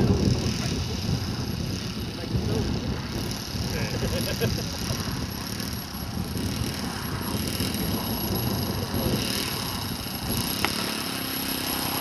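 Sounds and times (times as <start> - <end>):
model aircraft engine running: 0.0 - 12.0.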